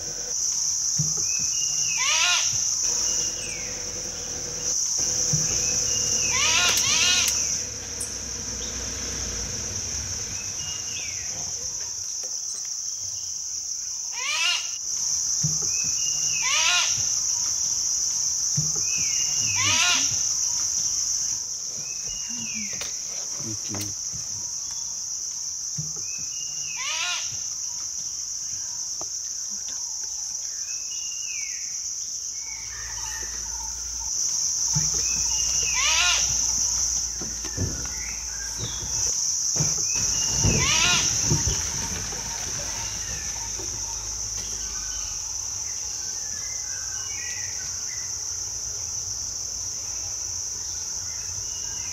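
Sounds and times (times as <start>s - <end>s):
insects shrilling: 0.0s - 51.9s
bird call with arching notes: 5.0s - 8.7s, 18.9s - 20.2s, 35.0s - 36.8s.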